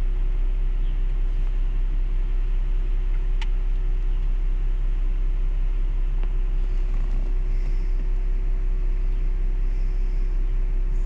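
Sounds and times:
car engine idling: 0.0 - 11.0
faint hum: 0.0 - 11.0.

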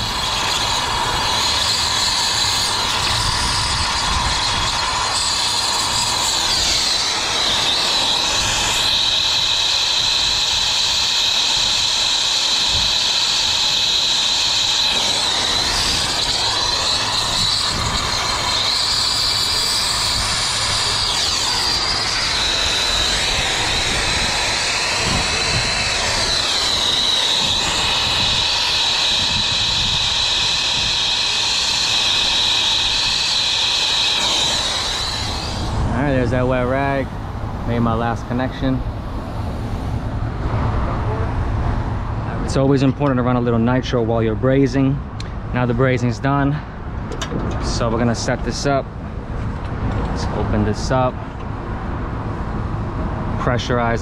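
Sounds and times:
torch flame hissing: 0.0 - 40.7.

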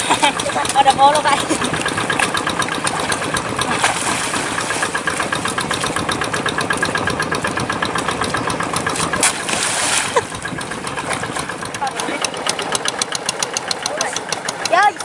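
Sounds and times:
water splashing: 0.0 - 14.9
diesel tractor engine knocking: 0.0 - 15.0.

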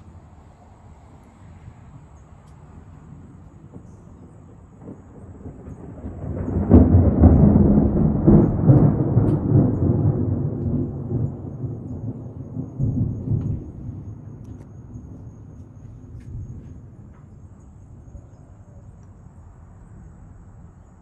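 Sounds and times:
thunder rumbling: 2.7 - 21.0
sharp thunder clap: 3.7 - 14.5.

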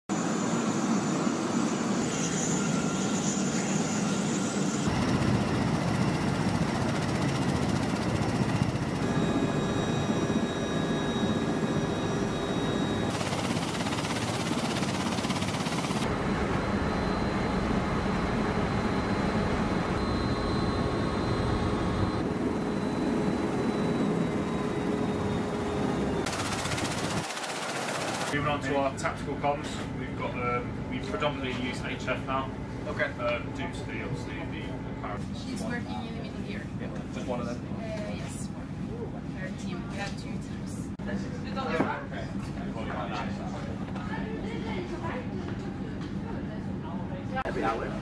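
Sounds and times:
aircraft turbine engines and rotors: 0.1 - 35.4.

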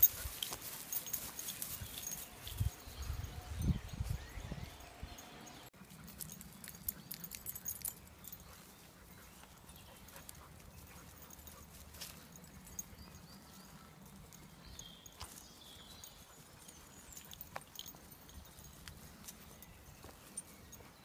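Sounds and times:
small clicks and rustles: 0.0 - 2.7
footsteps on dry earth: 13.0 - 21.0.

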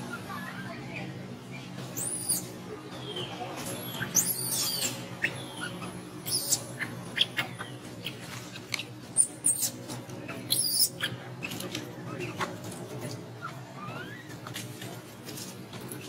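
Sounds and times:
baby monkey squeaking and squealing: 1.9 - 2.6, 3.8 - 11.6, 13.4 - 14.3.

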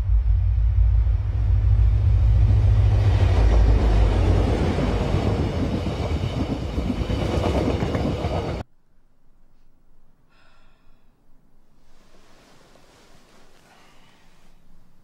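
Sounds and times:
train passing: 0.0 - 8.6.

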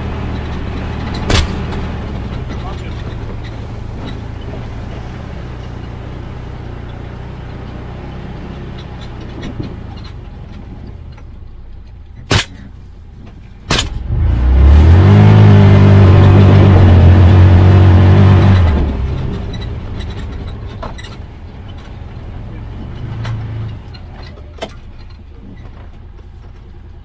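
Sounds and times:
engine revving: 0.0 - 10.0, 13.7 - 21.1, 22.0 - 24.1
vehicle engine running: 0.0 - 27.0
suppressed gunshots: 12.3 - 12.7.

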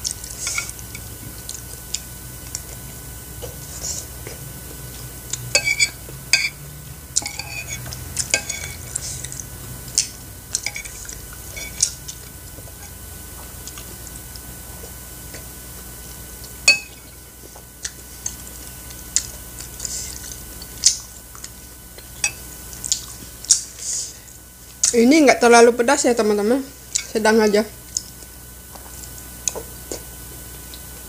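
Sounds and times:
quiet chewing: 0.0 - 6.2, 7.2 - 24.0, 27.8 - 31.0
metal spoon scraping ceramic plate: 5.5 - 6.6, 7.2 - 8.9.

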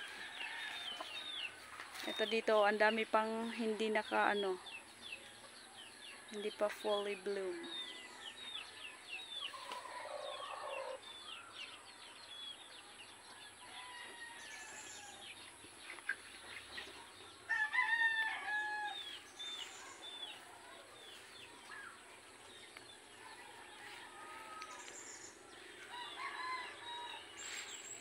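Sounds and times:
small birds chirping: 0.0 - 28.0
rooster crowing: 17.5 - 19.0, 25.9 - 27.4.

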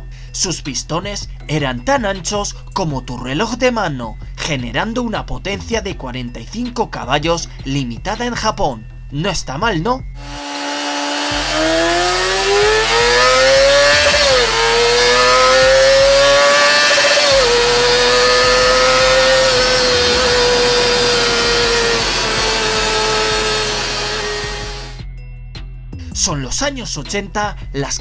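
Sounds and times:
motorcycle engine revving high: 10.2 - 25.0.

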